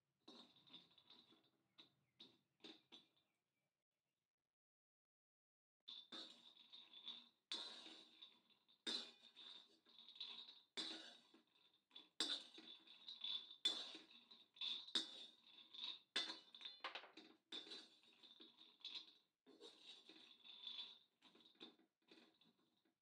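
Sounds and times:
metal spatula scraping pan: 10.8 - 11.2.

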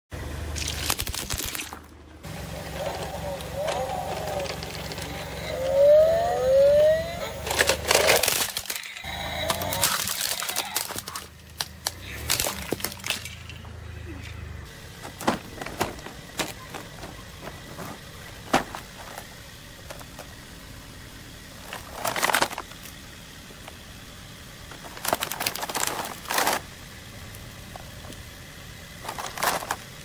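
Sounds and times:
low outdoor rumble: 0.1 - 30.0
packaging rustling and scraping: 2.7 - 5.8, 7.4 - 13.3, 14.9 - 20.4, 21.6 - 23.0, 24.7 - 26.6, 29.0 - 30.0.

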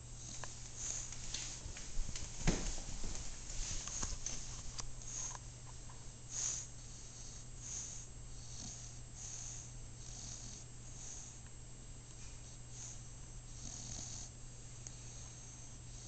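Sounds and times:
dog snoring and snuffling: 0.0 - 1.2, 6.3 - 11.4, 12.4 - 16.0.

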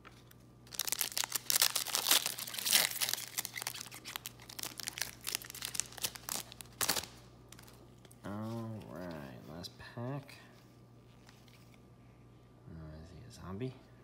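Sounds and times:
foil pack tearing and crinkling: 0.7 - 7.7.

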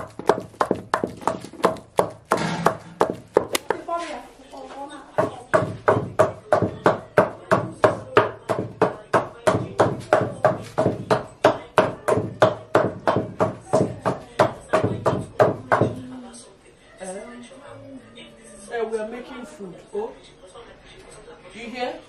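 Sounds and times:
pestle thudding in wooden mortar: 0.0 - 3.8.

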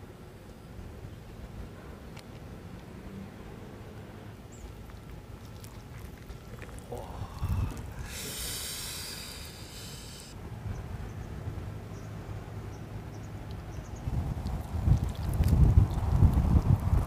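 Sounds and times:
meat ripping from bone: 4.9 - 10.3, 14.4 - 16.3.

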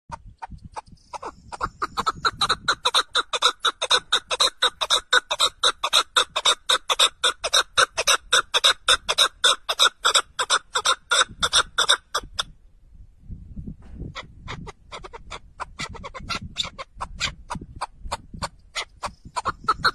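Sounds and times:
partridge calling: 0.1 - 12.5, 14.1 - 19.9.

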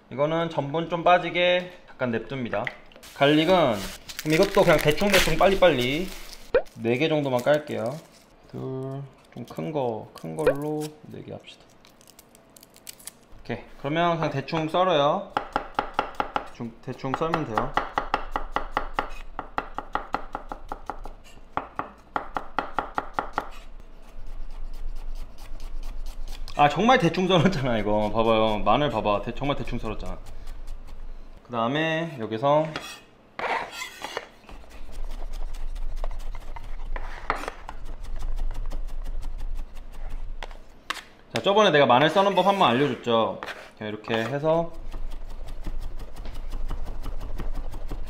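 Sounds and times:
knife chopping on wooden board: 15.3 - 16.5, 17.1 - 23.6.

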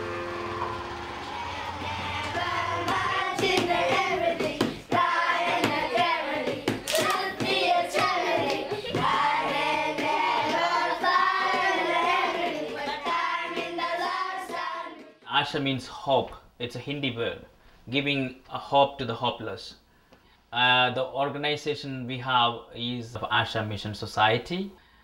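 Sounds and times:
boys singing together: 0.0 - 15.2
hand clapping: 2.2 - 14.6.

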